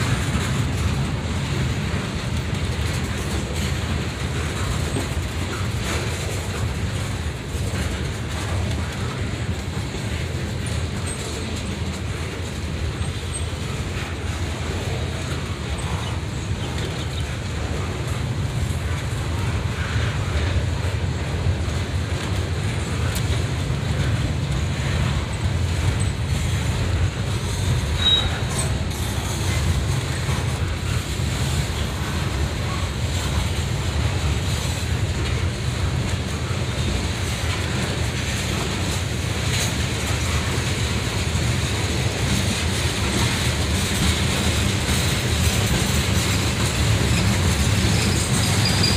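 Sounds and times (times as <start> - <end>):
train wheels rumbling on rail: 0.0 - 48.9
high wheel squeal: 27.9 - 29.3, 47.1 - 48.9.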